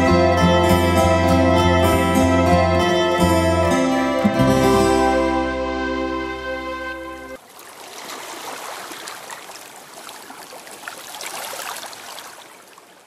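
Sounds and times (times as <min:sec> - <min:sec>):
held music chord: 0:00.0 - 0:07.4
water lapping over pebbles: 0:07.4 - 0:13.0.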